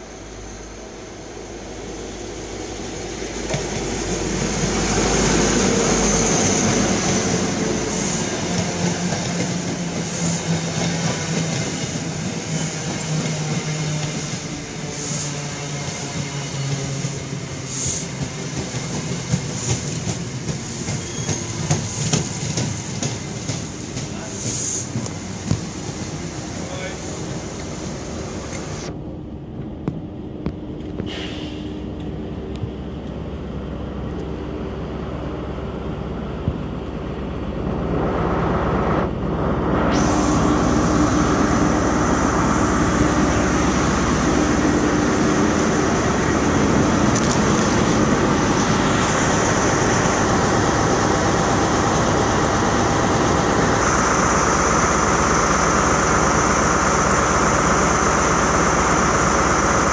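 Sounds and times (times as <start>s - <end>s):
train coaches running past: 0.0s - 31.0s, 31.7s - 59.9s
diesel engine and cooling fan: 28.8s - 59.9s.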